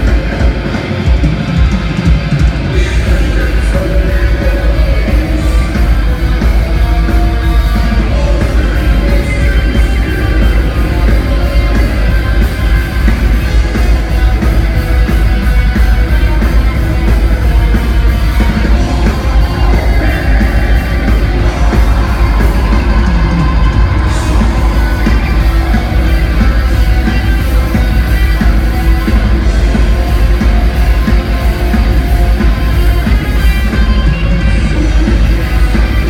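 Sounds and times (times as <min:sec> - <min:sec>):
vocals: 0:00.0 - 0:30.3
black metal band playing live: 0:00.0 - 0:36.0
distorted guitars: 0:00.0 - 0:36.0
drums: 0:00.0 - 0:36.0.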